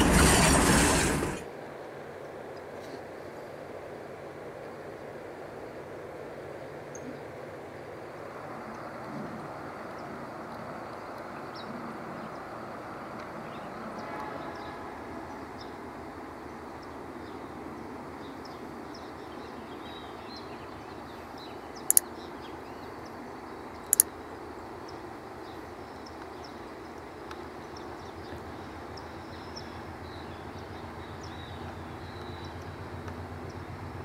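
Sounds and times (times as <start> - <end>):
diesel locomotive throb: 0.0 - 1.4
low train rumble: 0.0 - 2.5, 3.2 - 34.0
faint birdsong: 4.6 - 34.0.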